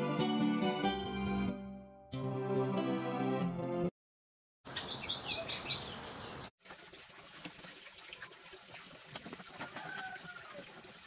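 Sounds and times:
bird chirping: 4.7 - 6.5.

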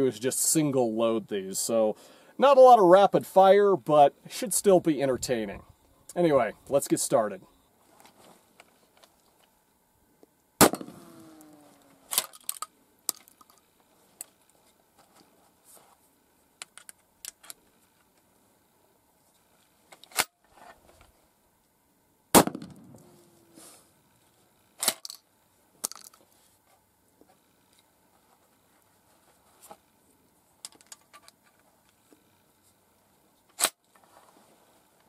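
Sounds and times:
shotgun blasts: 10.6 - 11.4, 22.3 - 23.0
shells being loaded by hand: 11.8 - 14.4, 16.6 - 17.6, 25.8 - 26.2, 33.5 - 33.8.

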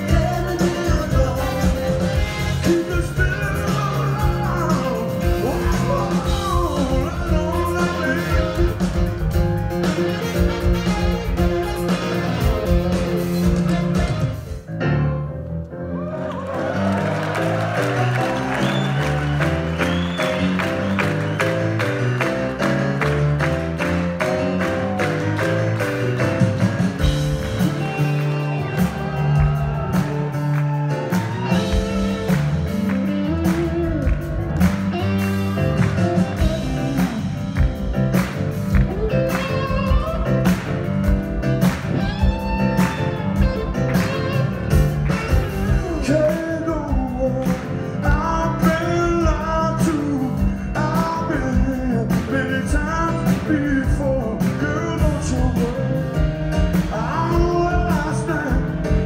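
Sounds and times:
man singing: 0.0 - 9.2, 45.6 - 59.0
steady drum beat: 0.0 - 14.7, 17.4 - 59.0
bass: 0.0 - 59.0
grand piano: 0.0 - 59.0.

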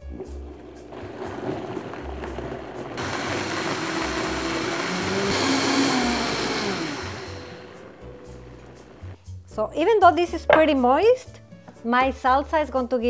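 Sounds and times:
blender motor running: 0.4 - 9.2.

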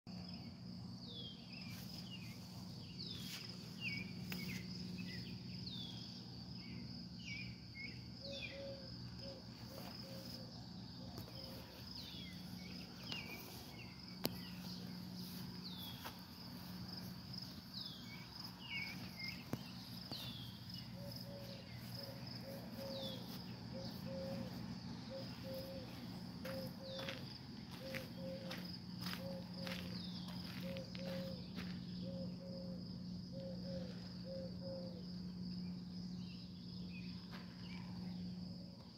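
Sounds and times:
insect trill: 0.1 - 38.9
low steady hum: 0.1 - 38.9.

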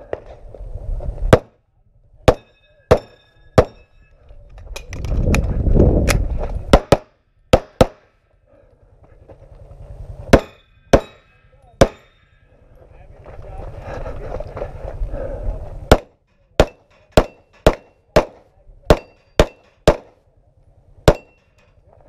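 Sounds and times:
wind rushing on camera: 0.0 - 1.3, 4.2 - 6.8, 13.3 - 15.9
metallic ringing of steel targets: 2.2 - 4.9, 10.3 - 13.0, 15.9 - 20.2, 21.0 - 21.9
pistol shots: 2.3 - 3.8, 6.7 - 8.1, 10.3 - 11.2, 11.8 - 12.1, 15.9 - 20.2, 21.0 - 21.4.

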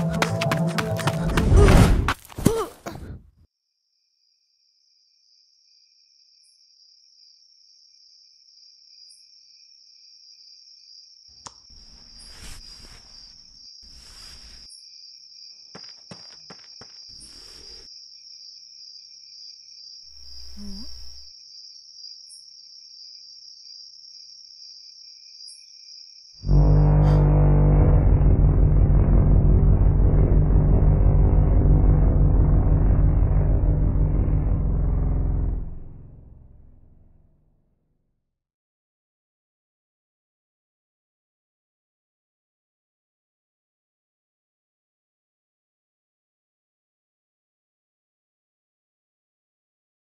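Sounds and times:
scuffing footsteps: 0.0 - 2.5, 15.8 - 17.2
low vocal sound with thud: 1.2 - 3.2
crickets chirring: 3.8 - 26.5
rustling: 11.7 - 14.7.

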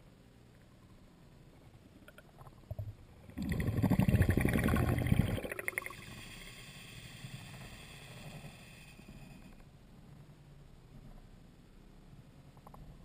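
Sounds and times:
faint hiss: 0.0 - 13.0
underwater bubbles gurgling: 2.6 - 6.3.

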